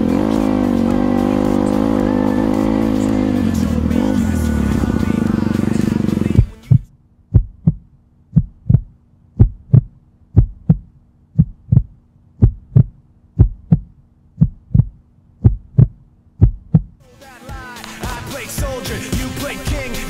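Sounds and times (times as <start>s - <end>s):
heartbeat thumps: 6.3s - 17.0s.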